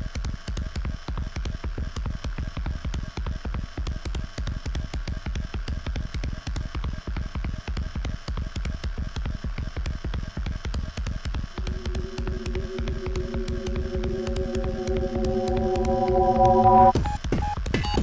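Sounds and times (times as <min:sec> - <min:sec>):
held low chord: 0:11.6 - 0:17.0
deep bass pulses: 0:11.6 - 0:17.1.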